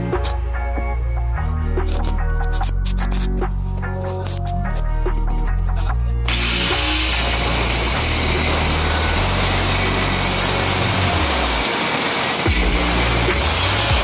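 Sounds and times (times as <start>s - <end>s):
background music: 0.0s - 14.0s
angle grinder cutting steel: 6.3s - 14.0s.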